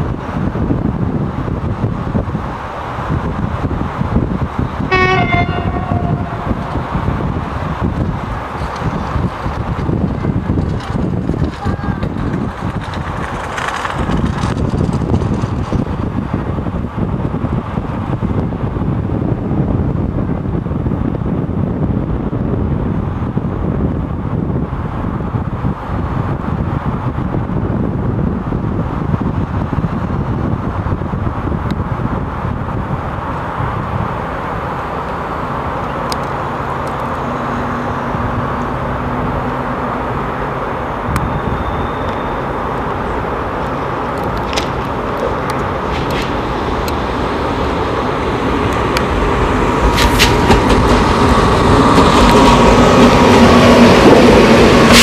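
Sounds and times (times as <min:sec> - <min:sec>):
electric locomotive running: 0:00.0 - 0:55.0
wheel clicks over rail joints: 0:08.5 - 0:16.0.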